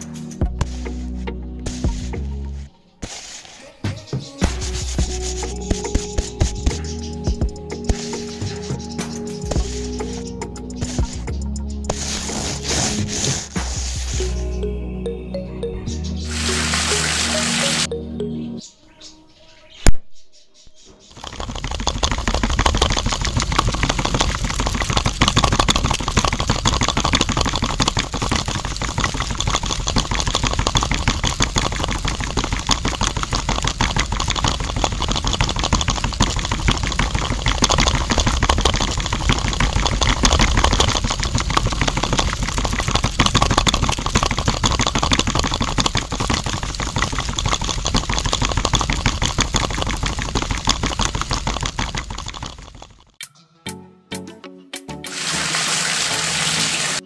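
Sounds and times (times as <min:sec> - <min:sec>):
rattling clatter of juice churning: 0:09.5 - 0:10.2, 0:21.1 - 0:53.2
small blender motor running: 0:16.3 - 0:17.9.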